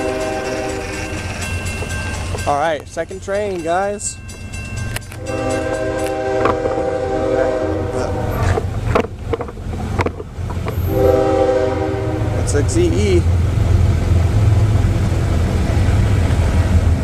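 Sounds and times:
locomotive air horn blasts: 0:00.0 - 0:01.2, 0:05.1 - 0:08.6, 0:10.8 - 0:12.6.

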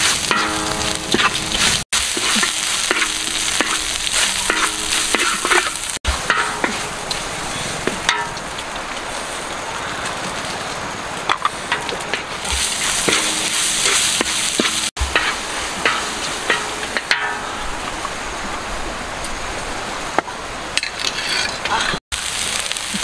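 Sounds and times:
paste sizzling in a wok: 0:00.0 - 0:07.0, 0:12.4 - 0:16.8, 0:22.2 - 0:23.0
wooden spatula scraping: 0:20.8 - 0:22.0.

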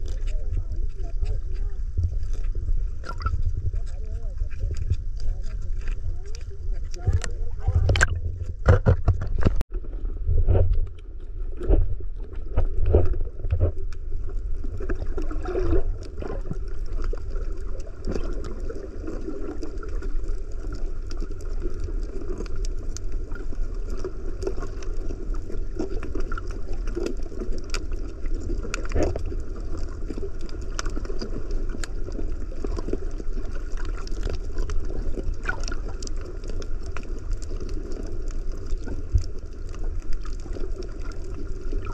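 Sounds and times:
underwater knocks and thuds: 0:00.0 - 0:17.2
muffled underwater rumble: 0:00.0 - 0:41.9.

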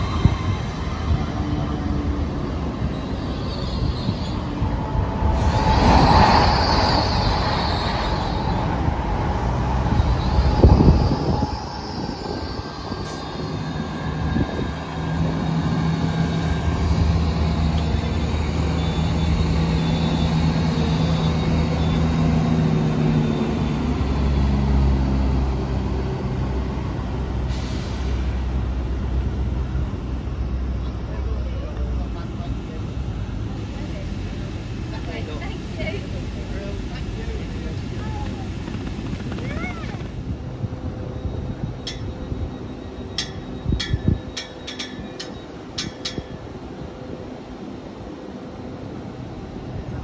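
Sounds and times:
diesel train engine drone: 0:00.0 - 0:50.0
high squeal: 0:02.4 - 0:24.6, 0:40.8 - 0:46.4.

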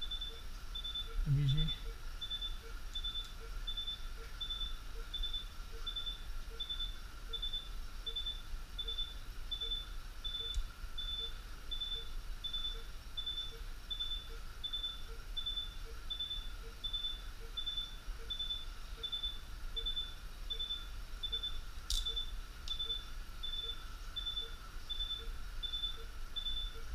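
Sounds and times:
equipment hum: 0:00.0 - 0:26.9
patient monitor pulse beep: 0:00.0 - 0:26.9.

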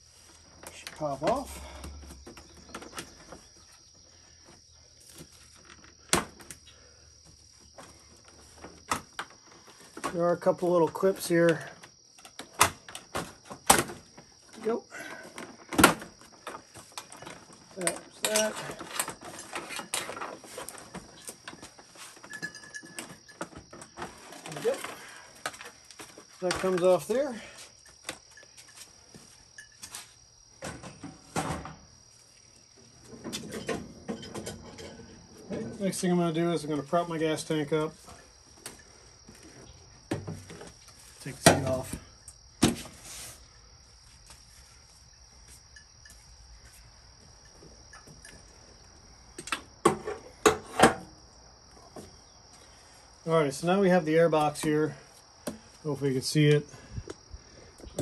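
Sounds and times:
crickets chirping: 0:00.0 - 0:58.0
plastic knocking and rustling: 0:38.6 - 0:43.0.

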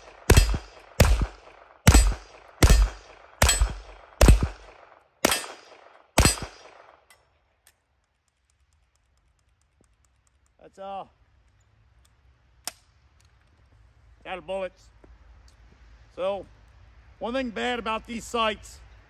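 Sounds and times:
gunshots: 0:00.0 - 0:07.0
faint gun clicks: 0:07.1 - 0:10.6, 0:11.4 - 0:13.7.

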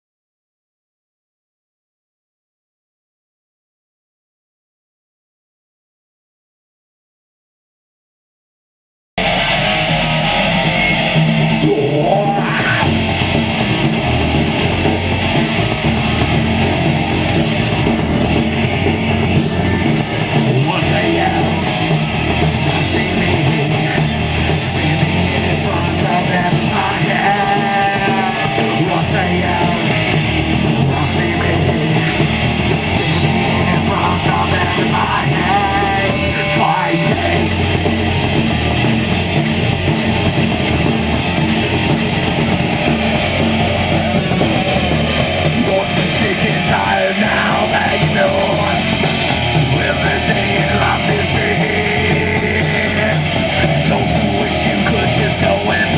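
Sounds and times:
drums: 0:09.2 - 0:55.9
electric guitar: 0:09.2 - 0:55.9
live rock band playing: 0:09.2 - 0:55.9
person singing: 0:10.1 - 0:38.0, 0:41.8 - 0:55.9.

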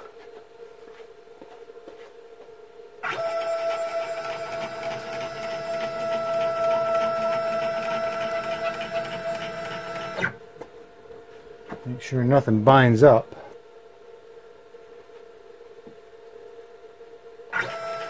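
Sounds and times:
stepper motor whine: 0:03.0 - 0:10.4, 0:17.5 - 0:18.0.

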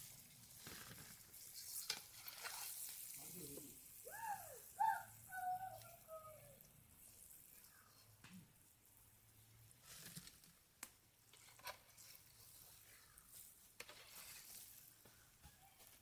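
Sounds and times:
faint background hiss: 0:00.0 - 0:16.0.

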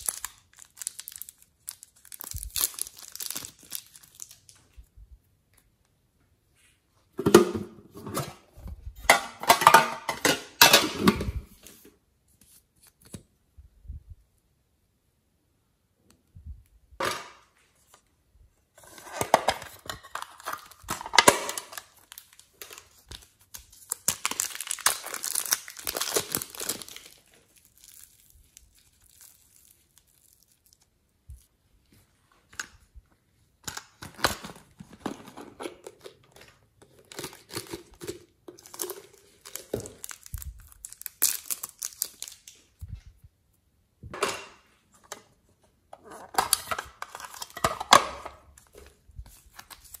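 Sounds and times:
plastic wrap crinkling: 0:00.0 - 0:04.8, 0:18.8 - 0:31.5, 0:33.9 - 0:42.9, 0:46.4 - 0:50.0
hands working clay and slime: 0:20.3 - 0:34.0.

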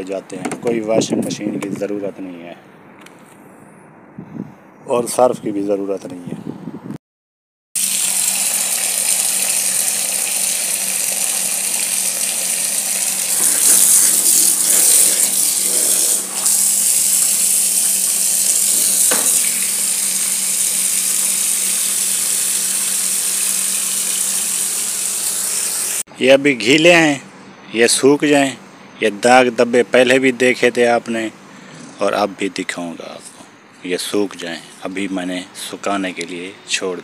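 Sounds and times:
tap running into bucket: 0:07.8 - 0:25.2.

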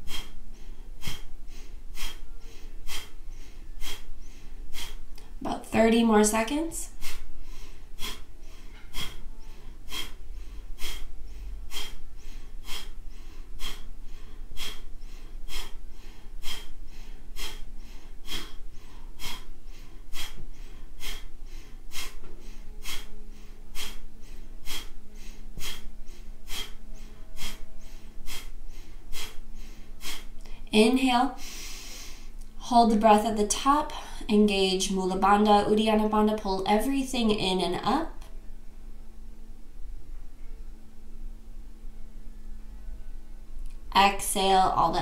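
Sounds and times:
forceful nasal exhales: 0:01.0 - 0:05.1, 0:06.9 - 0:30.4, 0:31.4 - 0:32.3.

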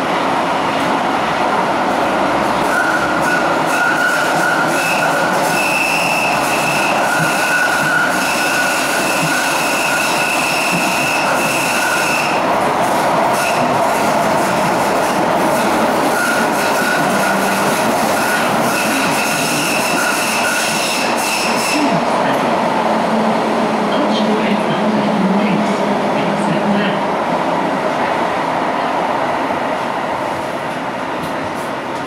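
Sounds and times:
train wheels rumbling on track: 0:00.0 - 0:32.0
high wheel squeal: 0:02.6 - 0:12.4, 0:16.0 - 0:22.0.

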